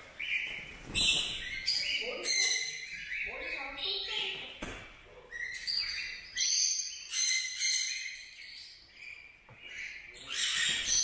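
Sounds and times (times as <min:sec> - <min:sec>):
parrots screeching: 0:01.0 - 0:04.0, 0:05.3 - 0:08.8, 0:09.7 - 0:11.0.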